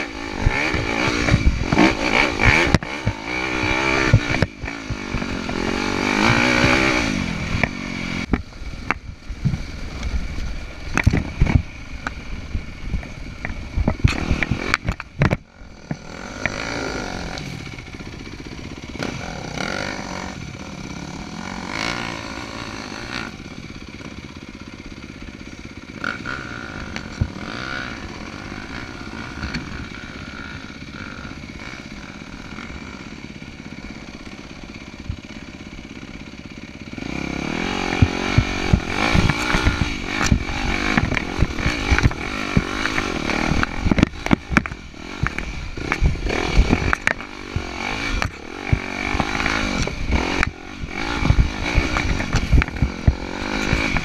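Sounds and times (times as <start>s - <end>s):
dirt bike engine revving: 0.0s - 54.0s
knocks and rattles from rocky ground: 0.5s - 12.2s, 12.8s - 19.9s, 37.5s - 54.0s.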